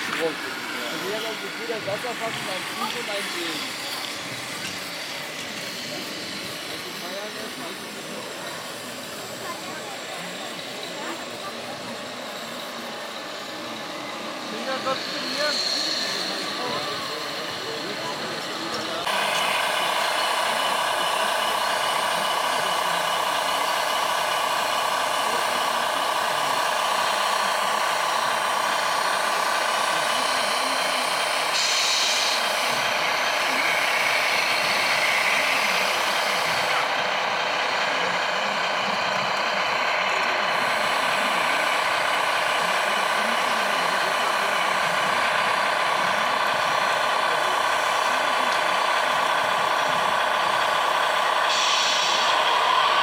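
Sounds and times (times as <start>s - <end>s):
toy truck motor humming: 0.0s - 53.0s.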